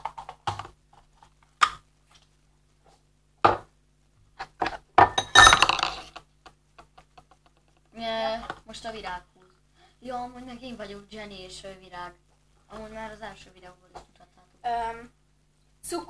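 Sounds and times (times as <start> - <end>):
dishes knocking on table: 3.4 - 3.7.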